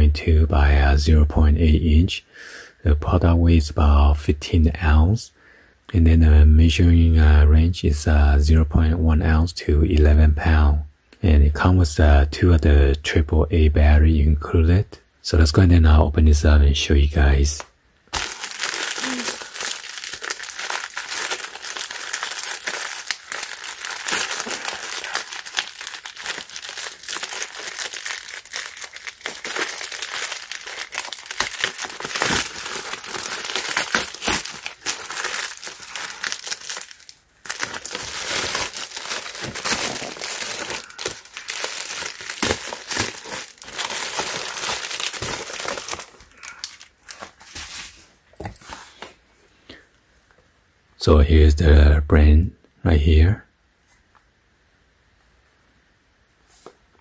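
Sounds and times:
plastic mailer crinkling: 18.1 - 47.9.

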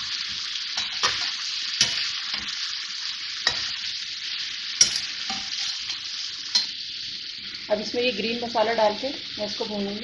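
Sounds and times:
metal spatula stirring: 0.0 - 2.6, 4.8 - 6.7
chicken sizzling in hot oil: 0.0 - 10.0.

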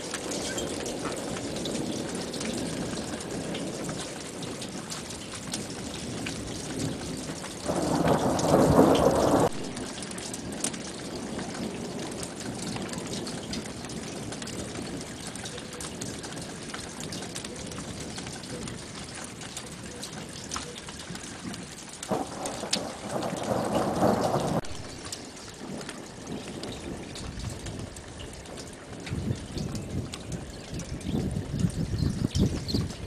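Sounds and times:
rain falling: 0.0 - 33.0
raindrops striking close by: 0.0 - 33.0
thunder: 5.6 - 15.1, 22.1 - 24.9, 25.6 - 33.0.

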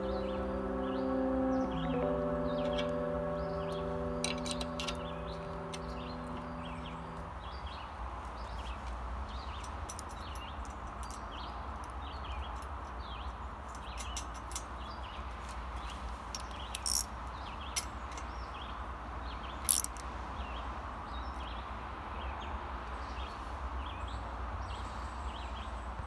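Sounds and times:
small birds chirping: 0.0 - 26.0
steady outdoor hum: 0.0 - 26.0
metallic tool clicks: 13.7 - 14.7, 16.4 - 17.1, 19.7 - 20.0.

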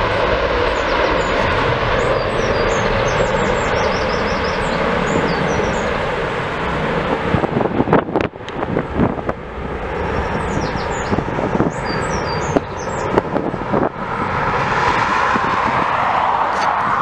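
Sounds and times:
jet engines at takeoff: 0.0 - 17.0
wind gusts on microphone: 0.0 - 17.0
birds chirping: 0.6 - 6.3, 9.8 - 13.4.

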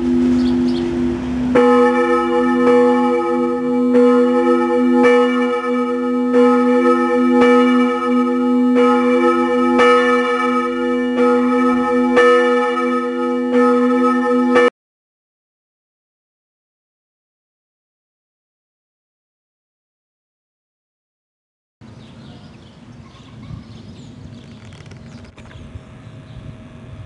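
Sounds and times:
church bells ringing: 0.0 - 14.7.

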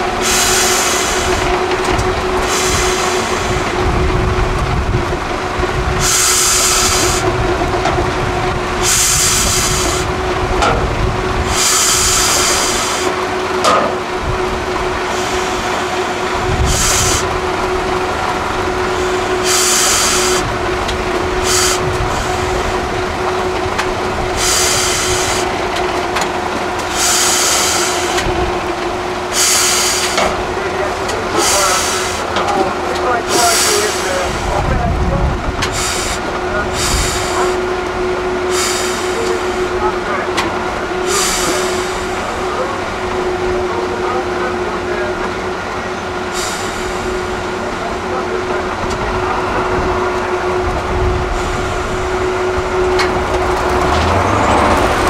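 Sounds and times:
diesel truck engine whining: 0.0 - 55.0
hissing bursts: 6.0 - 7.3, 11.4 - 13.2, 19.3 - 20.5, 24.3 - 25.6, 26.8 - 28.3, 29.2 - 32.4, 35.7 - 37.6, 38.5 - 39.7, 41.0 - 42.4.

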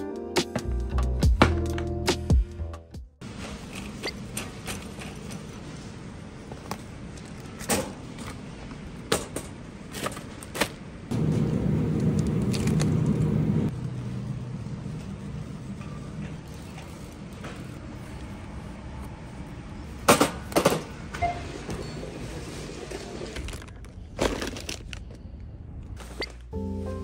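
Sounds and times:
shopping cart rolling and rattling: 3.2 - 11.4, 20.6 - 25.0
loud low rumble: 11.1 - 14.9.

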